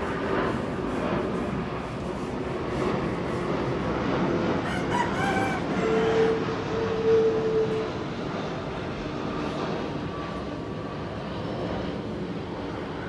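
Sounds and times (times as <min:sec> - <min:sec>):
jet airliner rumble overhead: 0:00.0 - 0:13.0
loud animal call: 0:04.7 - 0:07.6.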